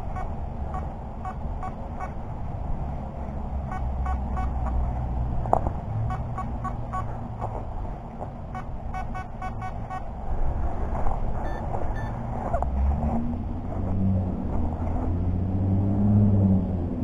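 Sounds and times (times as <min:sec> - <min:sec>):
metal detector beeps: 0:00.0 - 0:02.2, 0:03.7 - 0:04.7, 0:06.1 - 0:07.1, 0:08.6 - 0:10.1, 0:11.4 - 0:12.2
steady low rumble: 0:00.0 - 0:15.8.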